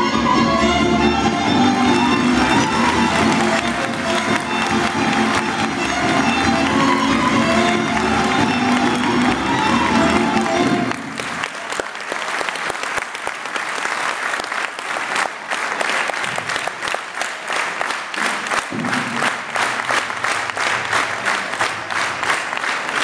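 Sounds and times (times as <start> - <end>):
live folk band music: 0.0 - 11.7
audience applauding: 1.2 - 23.0.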